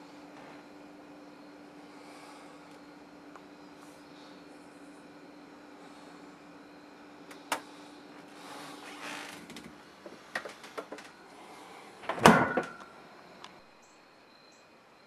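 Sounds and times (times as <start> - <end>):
refrigerator hum: 0.0 - 15.0
fridge door shutting: 12.0 - 12.8.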